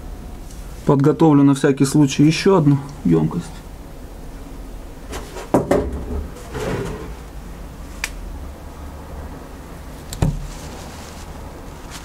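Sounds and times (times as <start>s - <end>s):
steady low background noise: 0.0s - 12.0s
hard objects knocking and clattering: 5.1s - 7.2s.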